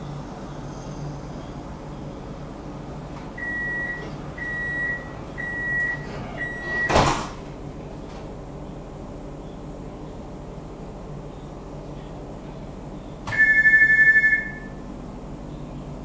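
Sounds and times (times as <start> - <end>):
doors shutting with a thud: 5.8 - 8.3
high electronic beeps: 13.3 - 14.8.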